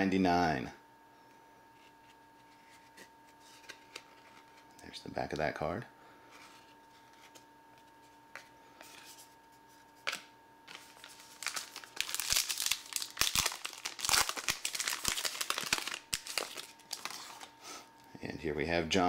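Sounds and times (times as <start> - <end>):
foil wrapper crinkling and tearing: 10.7 - 17.6.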